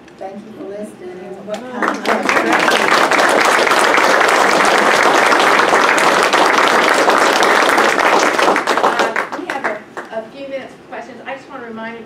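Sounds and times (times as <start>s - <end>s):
audience applauding: 1.8s - 10.1s.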